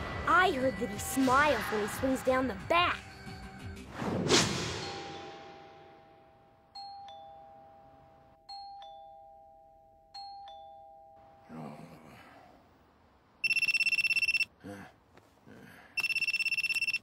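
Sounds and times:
two-tone doorbell chime: 6.7s - 11.4s.

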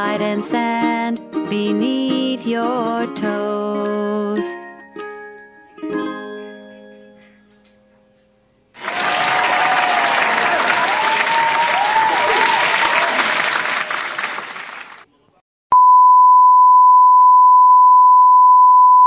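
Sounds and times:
crowd applauding and cheering: 8.8s - 15.1s
high beep tone: 15.7s - 19.0s.

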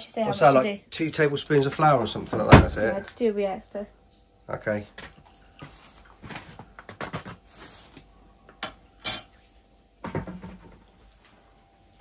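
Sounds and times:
utensils clinking on saucepan: 8.6s - 9.4s.

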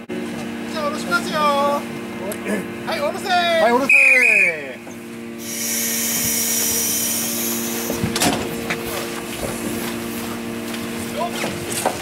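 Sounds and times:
winch mechanical hum: 0.0s - 12.0s
clunk: 8.0s - 8.8s.

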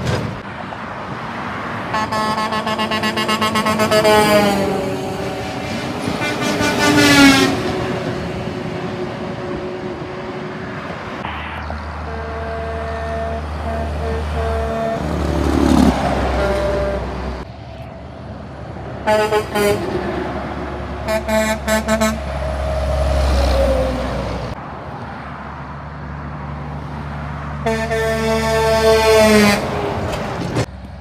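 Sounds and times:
diesel trucks rumbling past: 0.0s - 31.0s
vehicle passing by: 0.4s - 31.0s
truck horn blasts: 1.8s - 10.3s, 12.0s - 17.4s, 19.0s - 20.0s, 21.0s - 22.7s, 27.6s - 30.0s.

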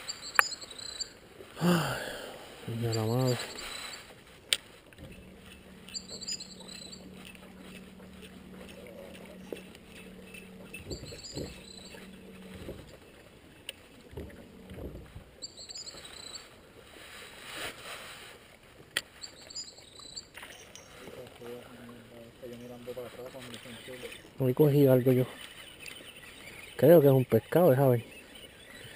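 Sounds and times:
steady low hum: 0.0s - 17.4s
short high chirps: 2.7s - 4.2s, 5.0s - 13.2s, 14.3s - 16.6s.

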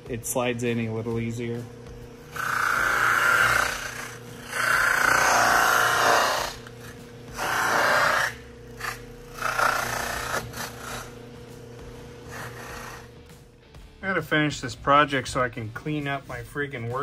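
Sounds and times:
electric motor humming: 0.0s - 13.9s
plastic edge rasping on buffing wheel: 2.2s - 11.3s, 12.1s - 13.2s.

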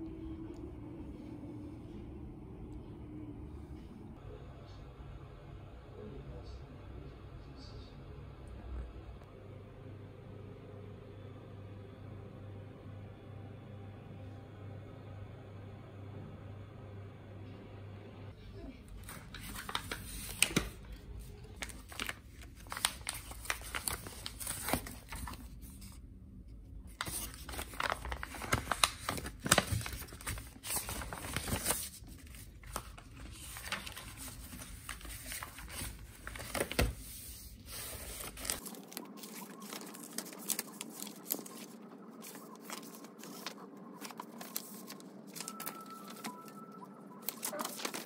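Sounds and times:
low background rumble: 0.0s - 12.2s
faint steady hum: 0.0s - 48.0s
paper rustling and crinkling: 19.0s - 26.0s, 26.9s - 46.6s, 47.2s - 48.0s.

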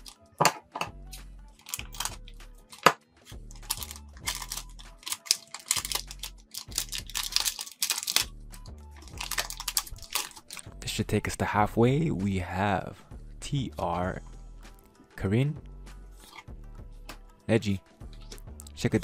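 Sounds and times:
background music with bass: 0.0s - 19.0s
foil wrapper crinkling: 3.6s - 8.3s, 9.0s - 10.7s.

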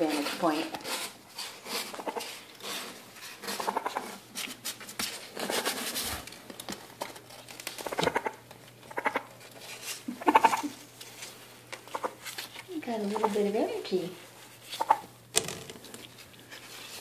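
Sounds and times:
baby raccoons chittering: 1.8s - 2.5s, 3.4s - 4.2s, 7.8s - 9.4s, 10.1s - 10.8s, 11.8s - 14.1s, 14.7s - 15.1s.

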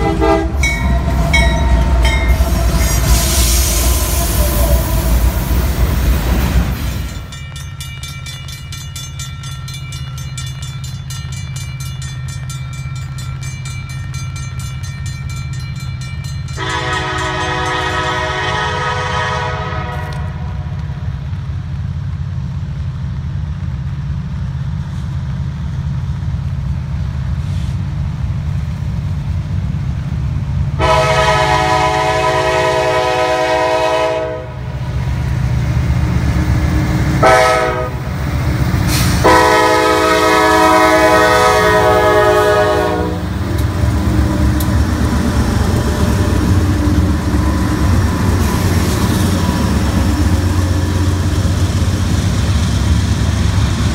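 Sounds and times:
railroad crossing bell ringing: 0.0s - 3.2s, 6.9s - 19.3s
train air horn blasts: 0.0s - 5.4s, 16.6s - 21.0s, 30.8s - 34.8s, 37.2s - 38.1s, 38.9s - 43.4s
diesel locomotive rumble: 0.0s - 53.9s.

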